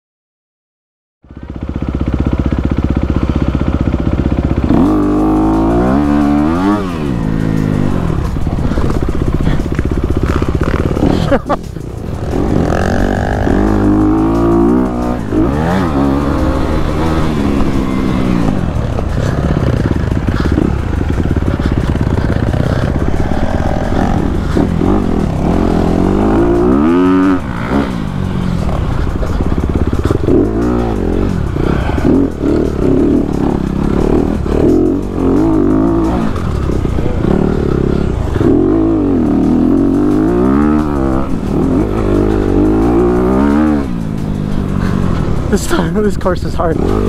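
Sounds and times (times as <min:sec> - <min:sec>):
motorcycle engine revving: 0:01.2 - 0:47.0.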